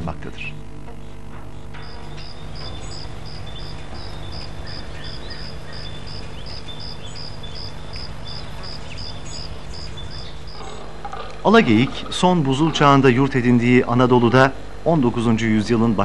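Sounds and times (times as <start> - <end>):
steady low hum: 0.0 - 16.0
faint bird calls: 0.9 - 11.0
insect chirping: 1.0 - 11.0.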